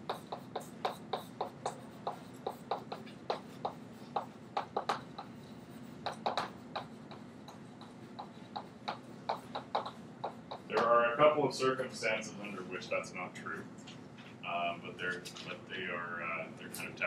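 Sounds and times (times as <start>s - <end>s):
chalk tapping on a blackboard: 0.0s - 10.9s.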